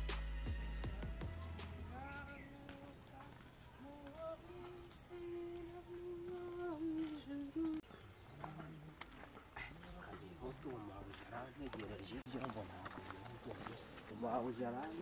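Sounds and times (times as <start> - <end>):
background music: 0.0 - 2.8.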